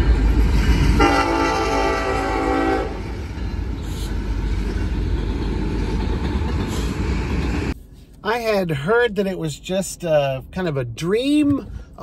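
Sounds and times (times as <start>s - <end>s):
locomotive air horn: 1.0s - 3.2s.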